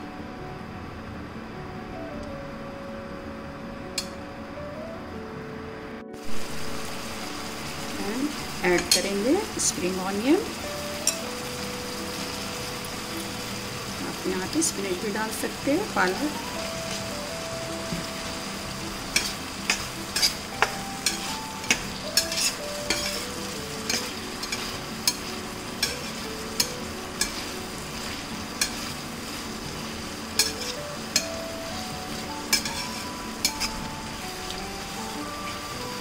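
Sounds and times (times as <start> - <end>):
food sizzling in frying pan: 6.2 - 36.0
metal spatula scraping and clinking: 19.1 - 29.0, 30.4 - 31.3, 32.5 - 33.8.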